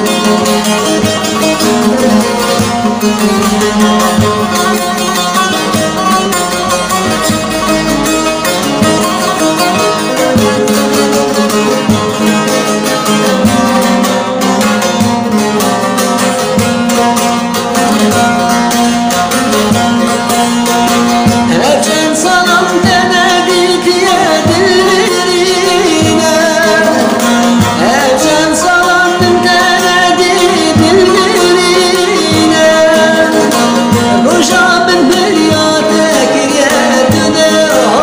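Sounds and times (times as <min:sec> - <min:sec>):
plucked string accompaniment: 0:00.0 - 0:38.0
person singing ornamented melody: 0:21.5 - 0:38.0.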